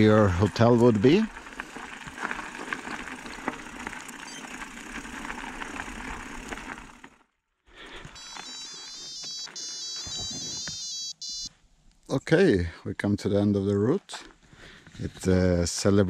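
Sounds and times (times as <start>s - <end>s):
bike tyres crunching on gravel: 0.0s - 10.8s
electronic beeps tune: 8.2s - 11.5s.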